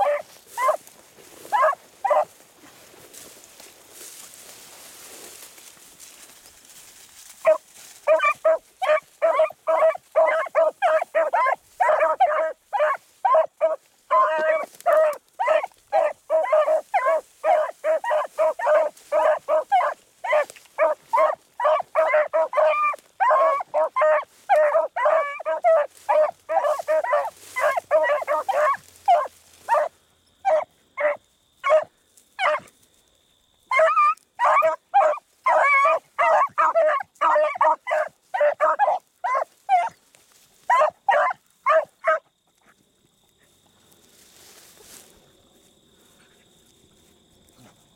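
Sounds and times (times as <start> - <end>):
beagles baying: 0.0 - 4.7, 7.3 - 32.7, 33.7 - 40.0, 40.6 - 42.3.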